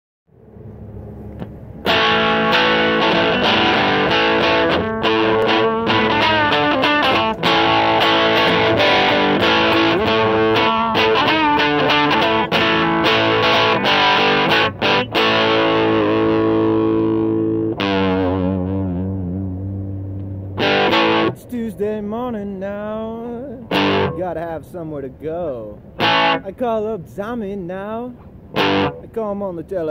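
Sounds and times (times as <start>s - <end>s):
distorted electric guitar riff: 1.4s - 21.4s, 23.2s - 24.4s, 25.9s - 26.6s, 28.2s - 29.1s.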